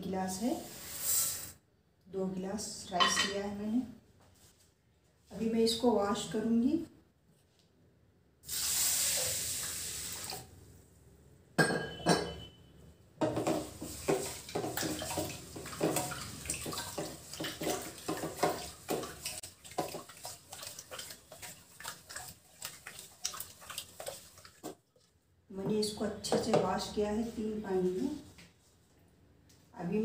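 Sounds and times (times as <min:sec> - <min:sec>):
water rushing into pot: 0:08.5 - 0:10.5, 0:13.3 - 0:24.8
wet rice swishing and scraping: 0:13.8 - 0:25.2.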